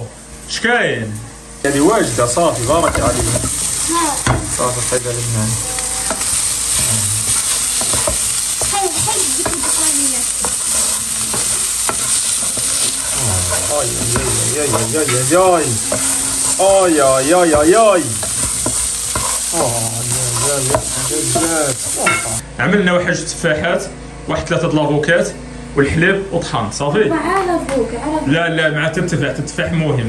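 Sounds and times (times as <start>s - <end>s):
meat and onions sizzling: 1.6s - 22.4s
spatula scraping pan: 1.7s - 22.4s
pitch-sliding short sounds: 12.3s - 18.2s.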